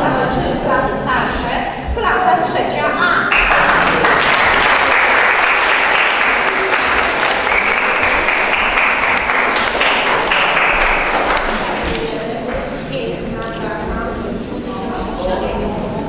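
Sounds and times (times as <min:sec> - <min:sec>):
audience clapping: 0:03.3 - 0:12.2.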